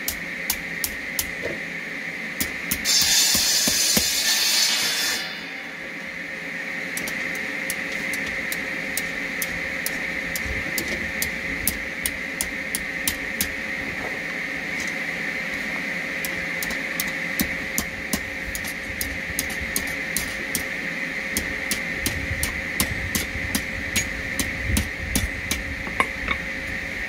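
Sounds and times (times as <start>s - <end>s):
hammer striking hot steel: 0.0s - 1.6s, 2.4s - 5.8s, 7.0s - 13.6s, 16.2s - 26.5s
steady hum: 0.0s - 27.0s
loud hiss: 2.8s - 5.9s.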